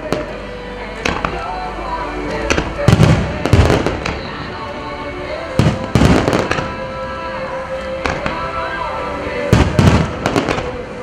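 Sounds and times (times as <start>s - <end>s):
fireworks booming and crackling: 0.0s - 1.6s, 2.4s - 4.5s, 5.5s - 7.0s, 8.0s - 8.7s, 9.4s - 11.0s
music with long held note: 0.0s - 11.0s.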